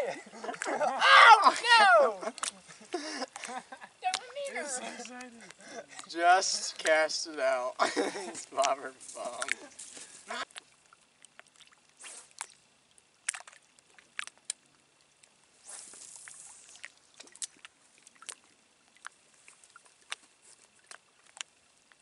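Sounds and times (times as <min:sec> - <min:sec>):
small clicks and splashes: 0:02.2 - 0:07.1, 0:08.2 - 0:22.0
fishing line paying off reel: 0:15.6 - 0:17.4.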